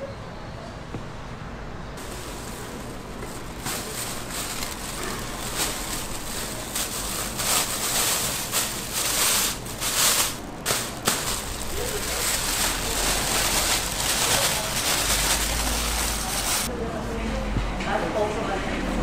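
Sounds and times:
plastic bag rustling: 2.0s - 16.7s.

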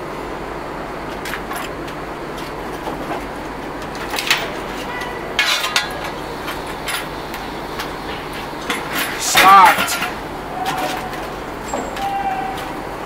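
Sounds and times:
metal shovel clinking and scraping: 4.0s - 12.8s.

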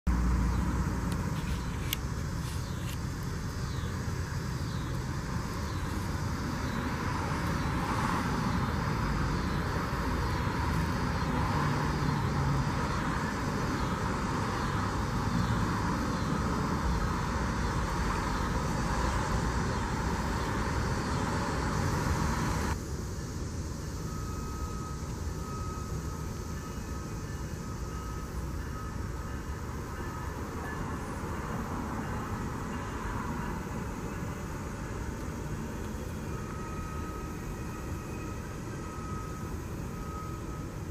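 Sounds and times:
distant road traffic rumble: 0.1s - 40.9s
faint high chirp: 24.1s - 31.2s, 36.0s - 40.7s.

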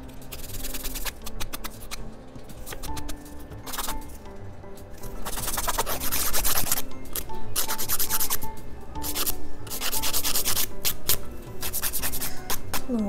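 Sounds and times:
nail file rasping on fingernail: 0.3s - 2.0s, 2.6s - 4.0s, 5.2s - 8.4s, 9.0s - 12.9s.

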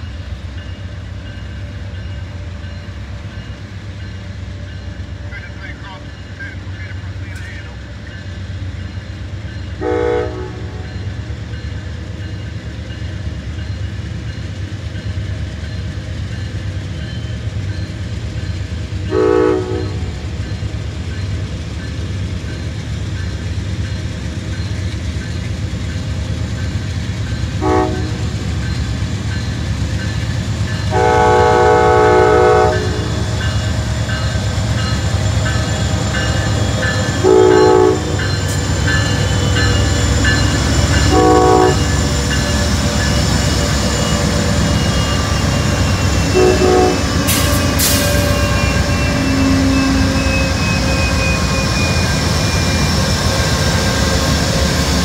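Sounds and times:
locomotive engine rumbling: 0.0s - 55.0s
train air horn blasts: 9.8s - 10.8s, 19.1s - 20.1s, 27.6s - 28.3s, 30.9s - 33.2s, 37.2s - 38.2s, 41.1s - 42.0s, 46.3s - 50.6s.

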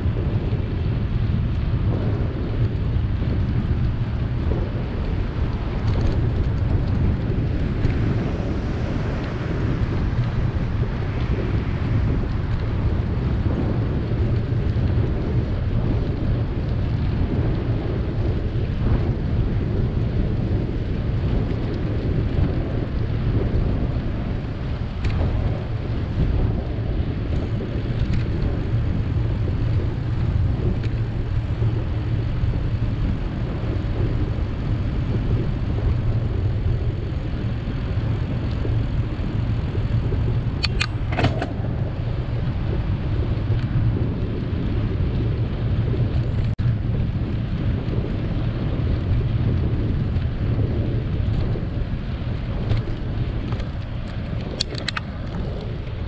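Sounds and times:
tyre and road noise: 0.0s - 56.0s
wind buffeting microphone: 0.0s - 56.0s.

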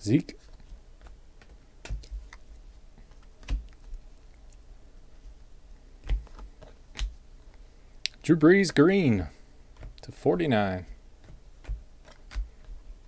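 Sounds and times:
trading cards clicking and tapping: 0.4s - 4.0s, 6.0s - 7.2s, 10.7s - 12.8s.

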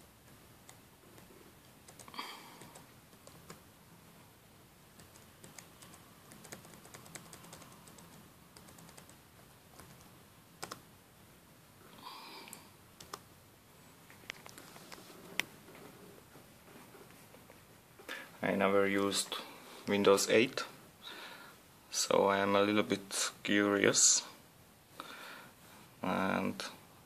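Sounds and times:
laptop keys tapping: 0.6s - 3.6s, 4.9s - 10.9s, 13.0s - 13.3s.

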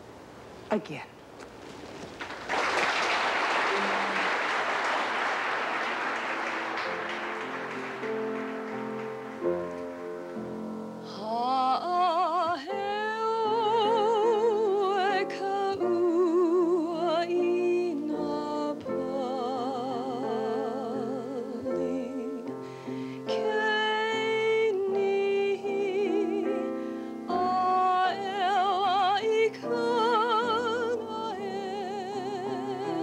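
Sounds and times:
instrumental accompaniment: 3.7s - 11.4s
woman singing with vibrato: 11.0s - 22.5s, 23.3s - 33.0s.

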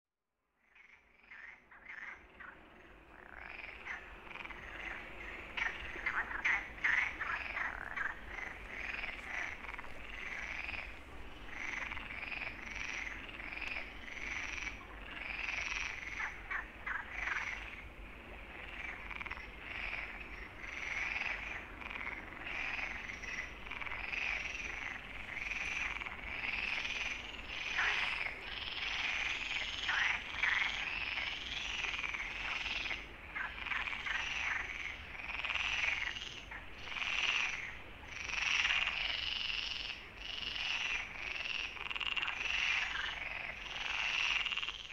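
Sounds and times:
frogs croaking: 0.5s - 44.9s.

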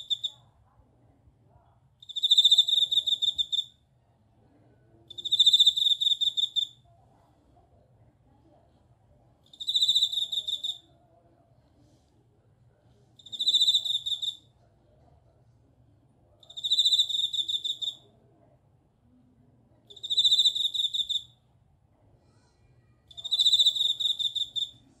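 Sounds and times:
cricket trilled chirps: 0.0s - 0.4s, 2.0s - 3.8s, 5.1s - 6.8s, 9.5s - 10.9s, 13.2s - 14.5s, 16.4s - 18.0s, 19.9s - 21.4s, 23.1s - 24.8s.

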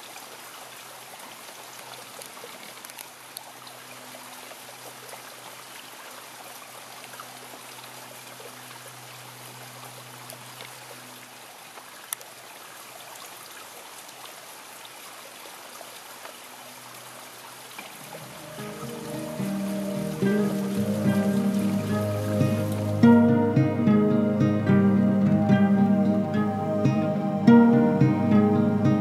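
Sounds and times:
heavy rain hiss: 16.8s - 29.0s.

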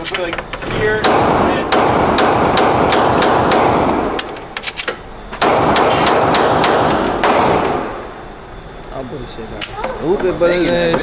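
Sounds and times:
pistol shots echoing: 1.0s - 4.2s, 5.4s - 8.0s.

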